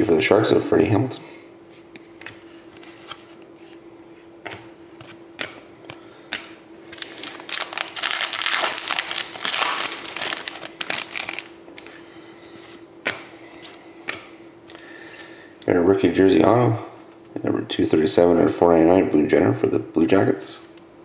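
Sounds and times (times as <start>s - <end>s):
faint steady hum: 0.0s - 21.0s
cards clicking and tapping: 4.4s - 7.4s, 14.0s - 14.3s
plastic wrapper crinkling and tearing: 6.9s - 11.9s.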